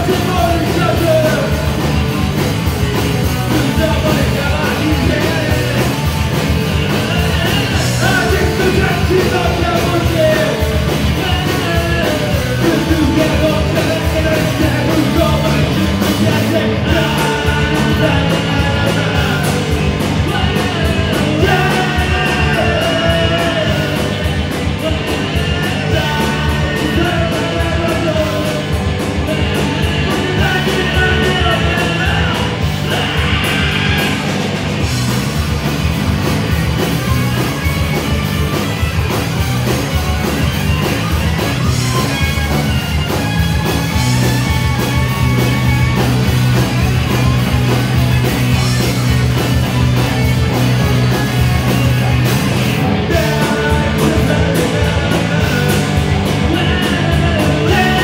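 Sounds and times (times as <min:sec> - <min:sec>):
loud live rock band: 0:00.0 - 0:58.0
person singing: 0:03.5 - 0:06.1, 0:06.8 - 0:34.4, 0:50.0 - 0:58.0.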